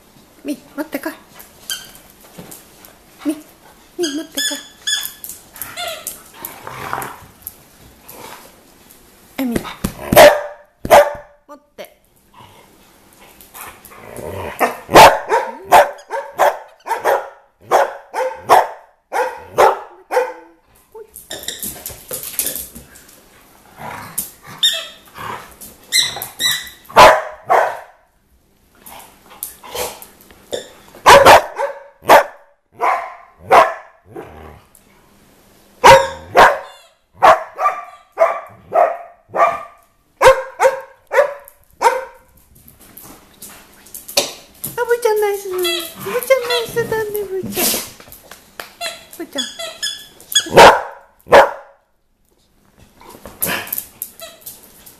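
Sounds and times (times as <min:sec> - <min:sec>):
small dogs barking: 0:10.1 - 0:11.3, 0:14.6 - 0:20.6, 0:26.0 - 0:28.0, 0:31.0 - 0:34.0, 0:35.8 - 0:42.3, 0:50.4 - 0:51.8.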